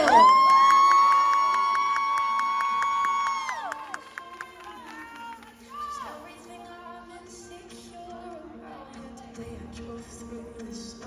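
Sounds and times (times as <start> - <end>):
audience cheering: 0.0 - 6.1.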